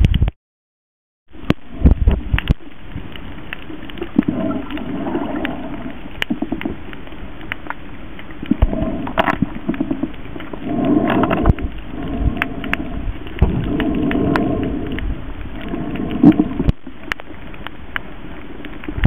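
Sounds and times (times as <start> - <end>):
bubbling: 1.3 - 19.0
fish scraping coral clicks: 1.4 - 19.0
underwater hiss: 4.2 - 6.5, 8.6 - 16.7.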